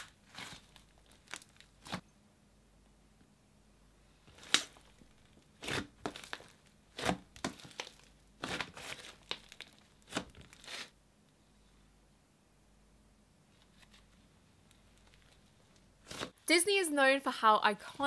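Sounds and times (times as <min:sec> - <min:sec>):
slime crackling and popping: 0:00.0 - 0:02.0, 0:04.3 - 0:10.8.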